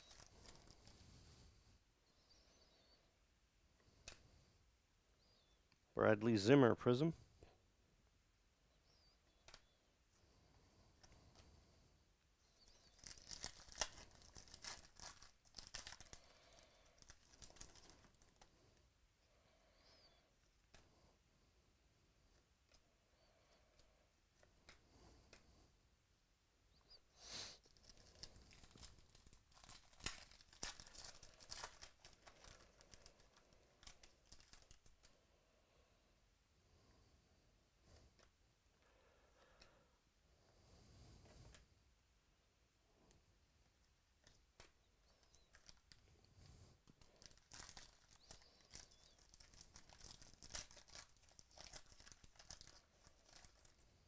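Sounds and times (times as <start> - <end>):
foil pack tearing and crinkling: 12.9 - 18.2, 27.7 - 34.8, 47.2 - 53.8.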